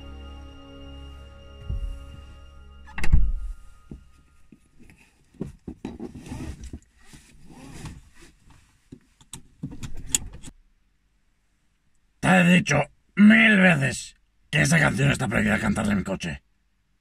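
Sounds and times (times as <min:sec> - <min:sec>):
car music playing: 0:00.0 - 0:04.6
heavy thump: 0:01.6 - 0:02.4, 0:03.0 - 0:04.1
seat belt and clothing rustling: 0:01.6 - 0:10.5.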